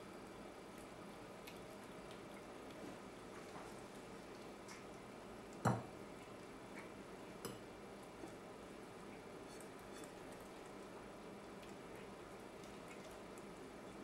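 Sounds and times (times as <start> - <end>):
cat eating from a plate: 0.2 - 14.0
clink on ceramic plate: 5.6 - 5.8.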